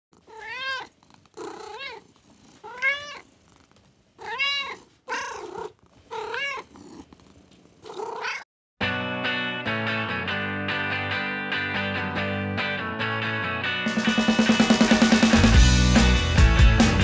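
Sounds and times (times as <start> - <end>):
cat meowing: 0.2 - 3.3, 4.2 - 6.8, 7.8 - 8.5.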